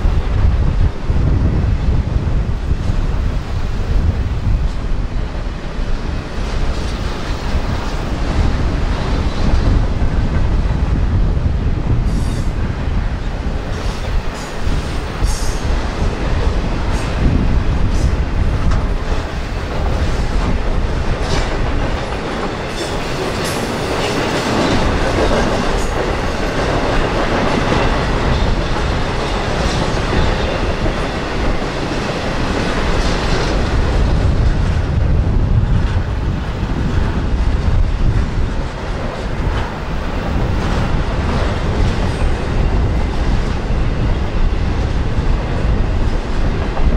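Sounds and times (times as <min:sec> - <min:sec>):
steady train rumble: 0:00.0 - 0:46.9
train wheels clicking over rail joints: 0:13.4 - 0:35.1.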